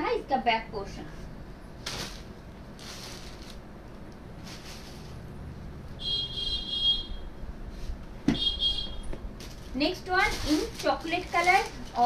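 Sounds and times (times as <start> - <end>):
fabric rustling: 1.8 - 3.6, 4.4 - 5.2, 9.4 - 12.0
shrill high-pitched buzzing tone: 6.0 - 7.4, 8.3 - 9.2.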